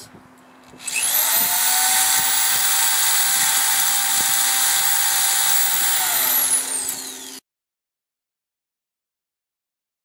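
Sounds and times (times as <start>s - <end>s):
electric drill whining: 0.8s - 7.4s.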